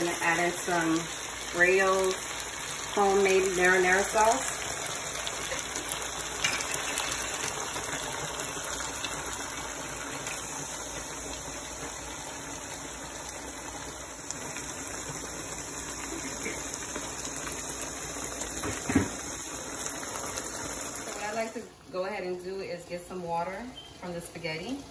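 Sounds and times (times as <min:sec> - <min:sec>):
food sizzling in a frying pan: 0:00.0 - 0:24.9.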